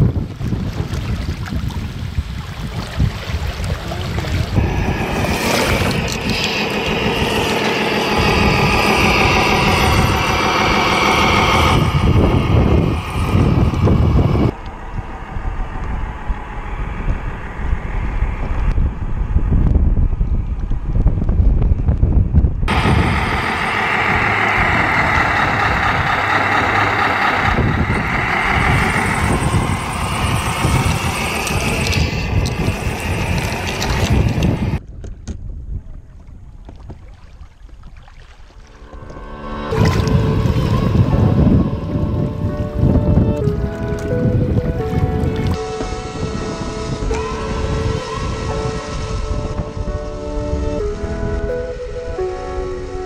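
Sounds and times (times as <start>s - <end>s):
muffled water: 0.0s - 53.0s
wind on microphone: 0.0s - 53.0s
electric motor whining: 4.6s - 19.7s, 22.7s - 34.8s.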